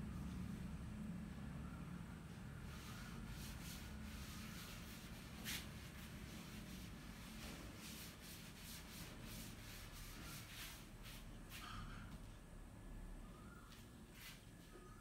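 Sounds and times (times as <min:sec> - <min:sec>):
cloth rubbing chalk off blackboard: 0:02.6 - 0:11.8.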